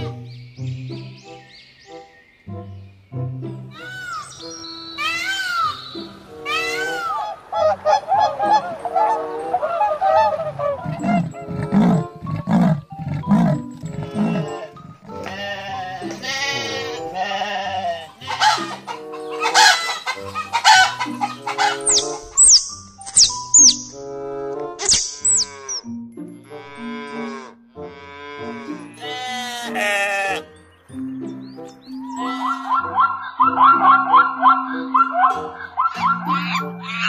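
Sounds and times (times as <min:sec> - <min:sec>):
background music: 0:00.0 - 0:37.0
animal honking calls: 0:06.4 - 0:22.6, 0:24.8 - 0:25.9, 0:26.5 - 0:30.4
sharp high falling chirps: 0:21.7 - 0:24.1, 0:24.8 - 0:25.9.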